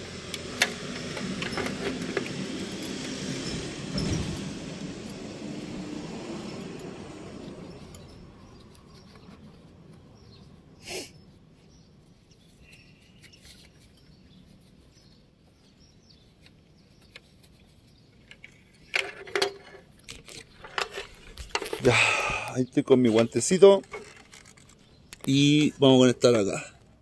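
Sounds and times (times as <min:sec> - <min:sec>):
traffic noise: 0:00.0 - 0:27.0
sharp clicks and knocks: 0:00.3 - 0:05.2
faint bird chirp: 0:07.6 - 0:19.0.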